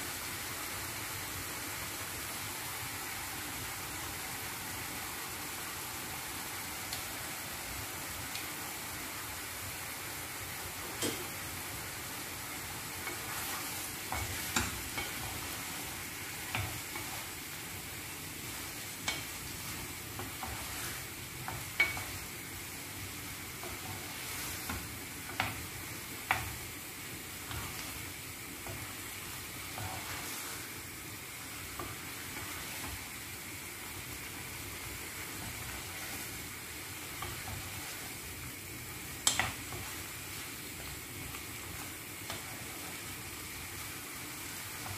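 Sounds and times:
chicken frying in oil: 0.0s - 44.9s
wooden spoon stirring: 12.2s - 33.2s, 34.0s - 44.9s
spoon knocking against pan: 21.4s - 22.2s.

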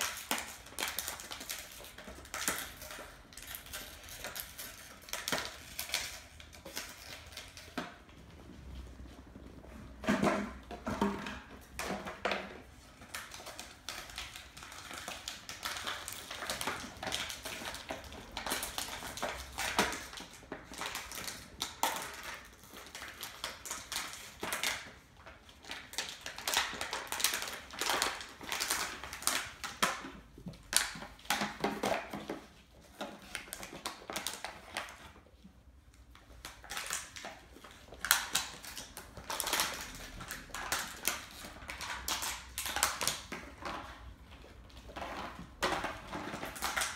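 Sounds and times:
puppy claws clicking on wood floor: 0.0s - 8.2s, 11.6s - 35.3s, 36.0s - 46.9s
plastic toy rattling and scraping: 36.2s - 46.9s.

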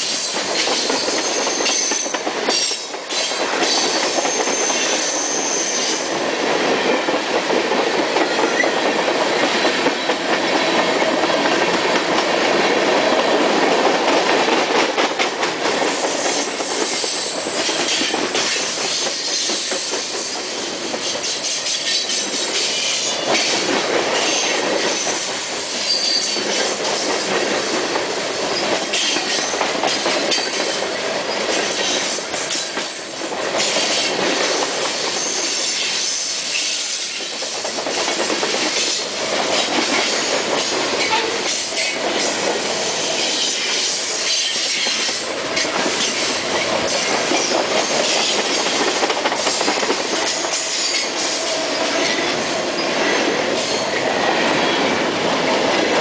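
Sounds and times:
train wheels rumbling on rail: 0.0s - 56.0s.

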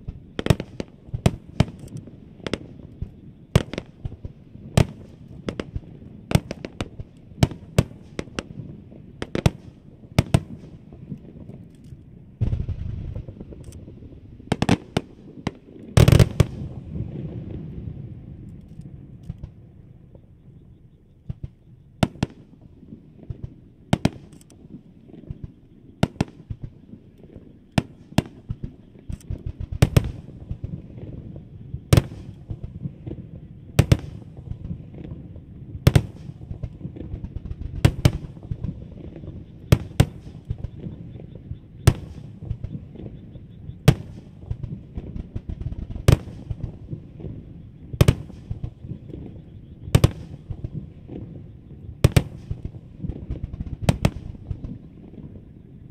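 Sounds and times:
fireworks bangs: 0.0s - 11.7s, 12.3s - 20.3s, 21.2s - 55.9s
small firework pops: 0.0s - 55.9s
low rumble: 12.4s - 14.5s.

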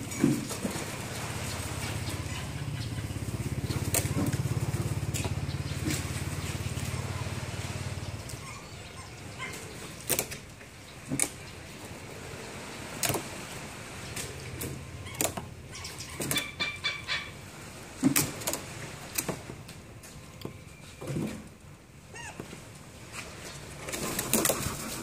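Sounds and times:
clucking bird calls: 1.4s - 10.2s, 14.3s - 17.5s.

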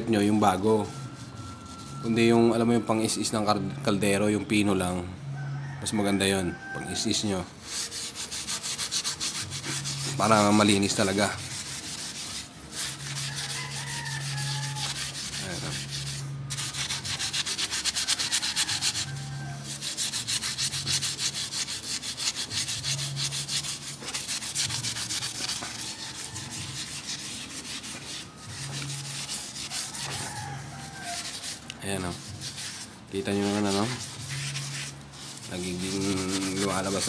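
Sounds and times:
scouring pad scrubbing metal: 7.8s - 37.0s.

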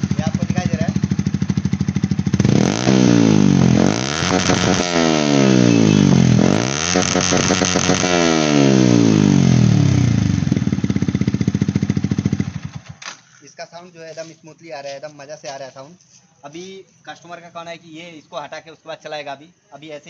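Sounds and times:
motorcycle engine revving: 0.0s - 13.1s.

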